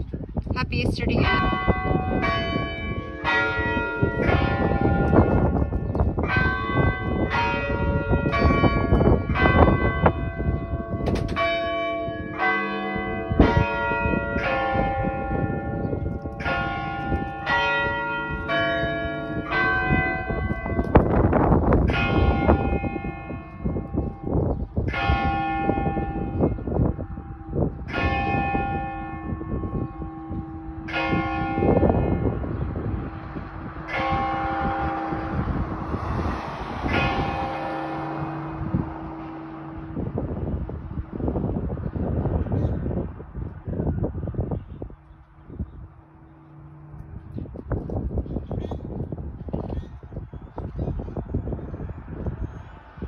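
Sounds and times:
church bells pealing: 0.9 - 41.7.

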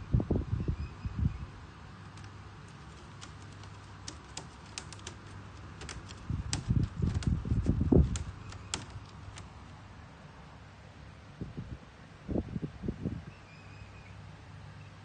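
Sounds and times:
light clicks and taps: 2.1 - 9.5.

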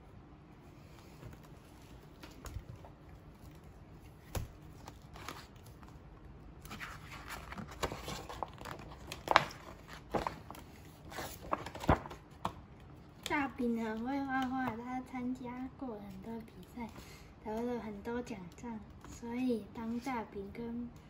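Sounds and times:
book pages turning: 0.8 - 14.8.

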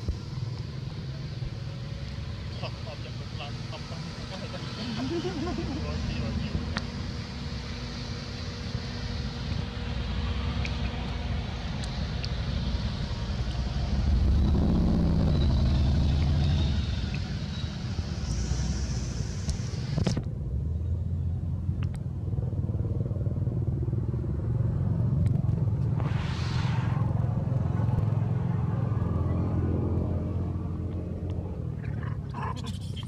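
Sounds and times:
low traffic rumble: 0.0 - 33.0
vehicles passing: 0.0 - 33.0
motorcycle engine: 5.0 - 18.9.

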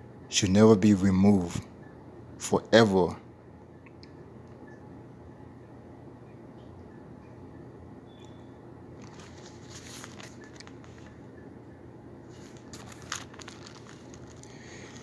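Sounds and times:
faint rustling: 9.0 - 11.3, 12.2 - 15.0.

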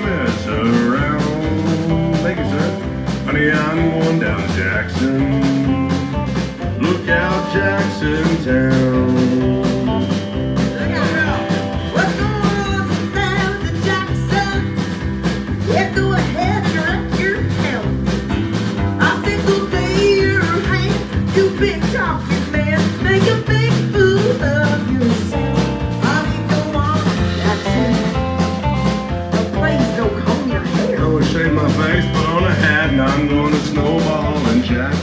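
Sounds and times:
live country band playing: 0.0 - 35.0
woman singing: 4.9 - 14.9, 15.6 - 18.0, 19.0 - 28.5, 29.3 - 34.7.

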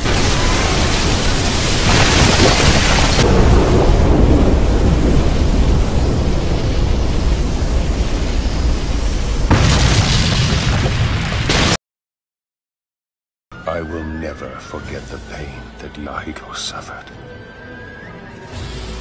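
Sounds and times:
explosion rumble: 0.0 - 11.8.

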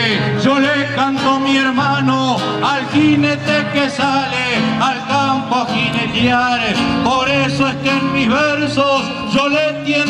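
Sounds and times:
acoustic guitar accompaniment: 0.0 - 10.0
man singing: 0.0 - 10.0.

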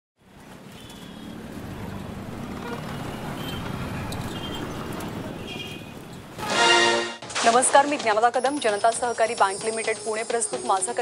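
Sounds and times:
road traffic rumble: 0.2 - 6.5.

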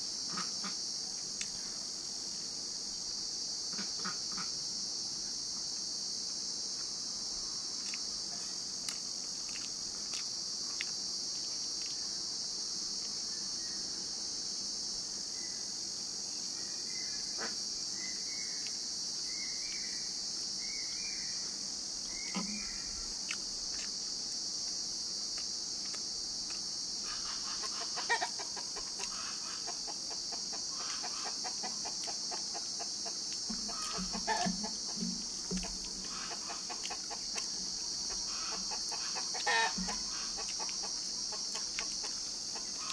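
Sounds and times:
high-pitched insect drone: 0.0 - 42.9
faint eating clicks: 8.8 - 12.0, 23.2 - 24.0, 24.6 - 26.7, 33.3 - 42.9
clucking: 27.1 - 42.9.

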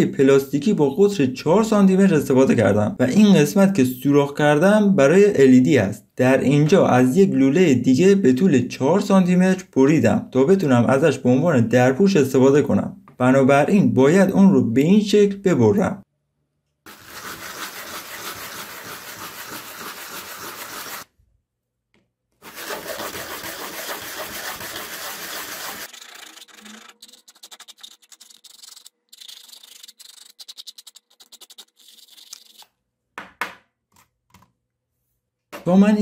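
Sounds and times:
plastic pipe rubbing on sandpaper: 16.9 - 21.1, 22.4 - 32.6.

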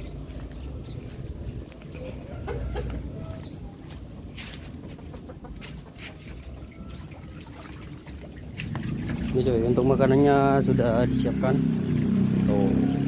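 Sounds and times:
steady low rumble: 0.0 - 2.2.

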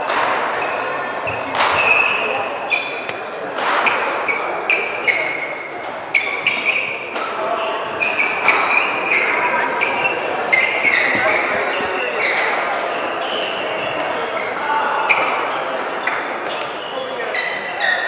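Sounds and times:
racket hitting shuttlecock: 0.0 - 2.2, 3.0 - 5.2
shoes squeaking on hall floor: 0.0 - 18.0.

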